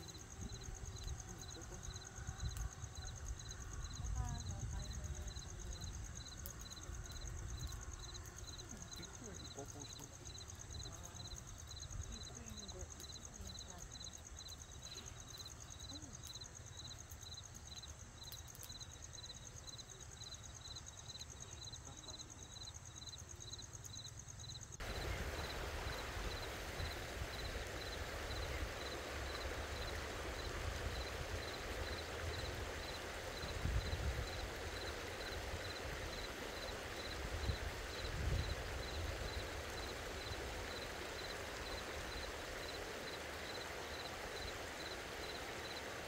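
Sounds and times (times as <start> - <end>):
night insects chirping: 0.0 - 46.0
river running over stones: 24.8 - 46.0.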